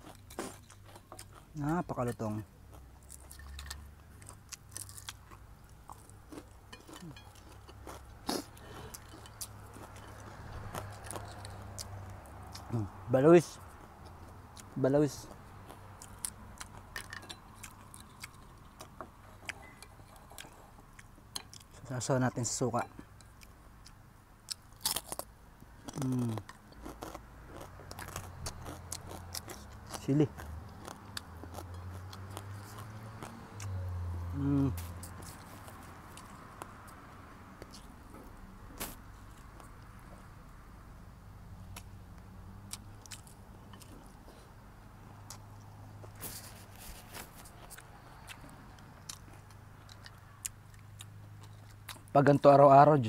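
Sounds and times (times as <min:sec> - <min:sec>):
chewing crispy fried fish: 0:00.0 - 0:12.9, 0:13.5 - 0:21.9, 0:22.5 - 0:33.7, 0:34.4 - 0:38.0, 0:42.7 - 0:44.5, 0:45.1 - 0:52.2
person humming: 0:34.0 - 0:34.9.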